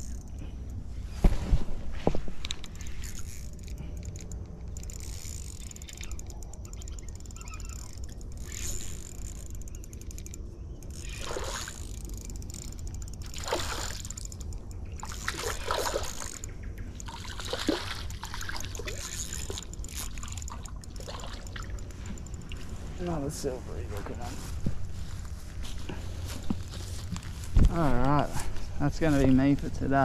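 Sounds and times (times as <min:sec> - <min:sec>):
steady low rumble: 0:00.0 - 0:30.0
fish splashing at water surface: 0:13.3 - 0:14.2, 0:15.0 - 0:16.4, 0:17.0 - 0:22.7.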